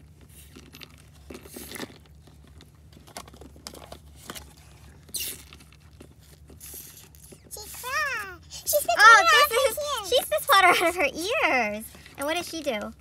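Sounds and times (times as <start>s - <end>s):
low steady hum: 0.0s - 13.0s
plastic toys clicking and tapping: 11.9s - 13.0s.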